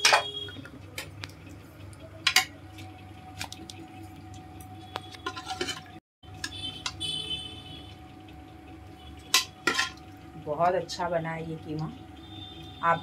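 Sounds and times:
metal spoon clinking and scraping: 5.2 - 6.0, 9.3 - 10.0.

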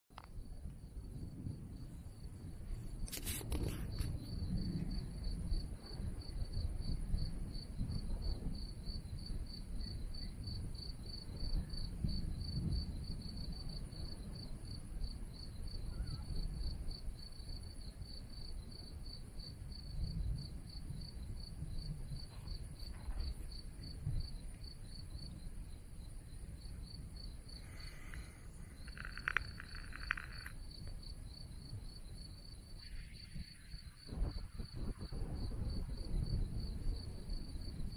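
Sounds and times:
cricket chirping: 0.1 - 37.9
low uneven rumble: 25.4 - 31.0.

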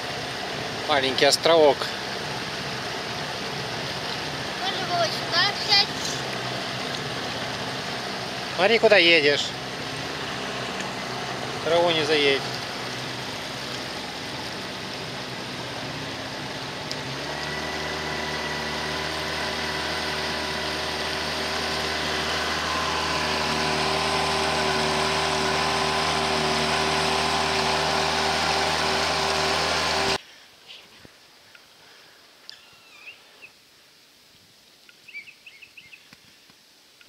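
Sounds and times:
outboard motor running: 0.0 - 30.2
steady hiss: 30.2 - 37.0.

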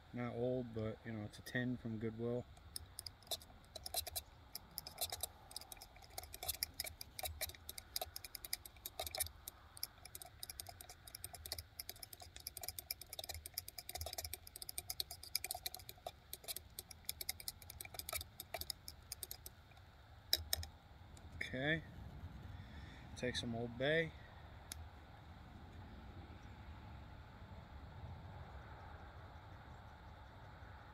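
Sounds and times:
spoon scraping metal cup: 2.7 - 19.6, 20.3 - 20.7.

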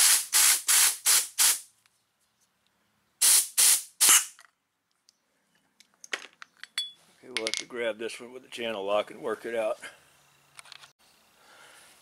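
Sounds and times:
compressed air blow gun hissing: 0.0 - 1.7, 3.2 - 4.3.

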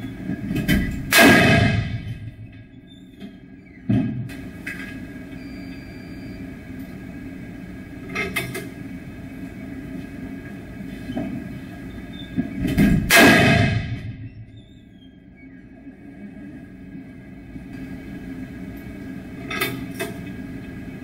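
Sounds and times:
steady hum: 0.0 - 21.0
gunshot ringing: 1.1 - 2.2, 13.1 - 14.1.

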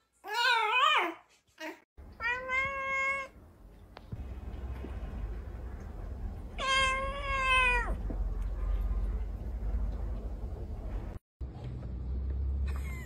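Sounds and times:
low steady rumble: 2.0 - 13.0
cat meowing: 2.2 - 3.4, 6.6 - 8.0.

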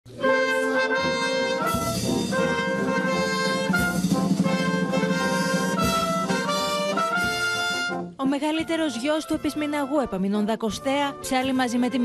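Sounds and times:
brass band playing solemn piece: 0.1 - 8.2
drum strokes: 1.1 - 8.8.

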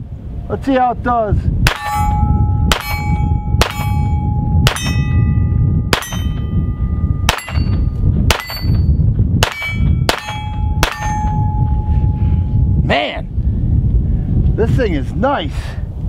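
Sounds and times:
sharp pistol shots: 1.6 - 5.0, 7.3 - 8.8, 9.4 - 11.3
steel target ringing: 1.6 - 12.8.

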